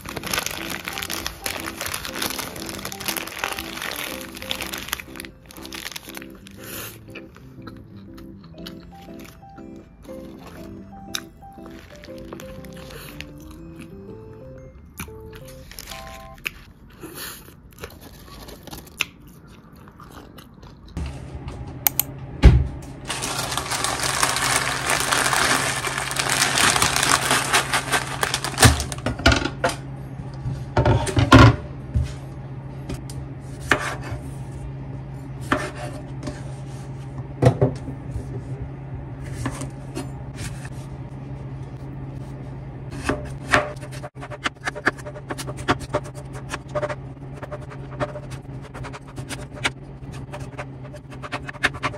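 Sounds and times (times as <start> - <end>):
steady low hum: 19.9 - 51.9.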